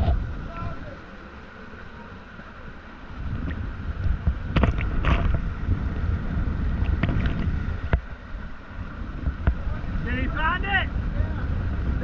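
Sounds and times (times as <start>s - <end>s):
floodwater rushing: 0.0s - 12.0s.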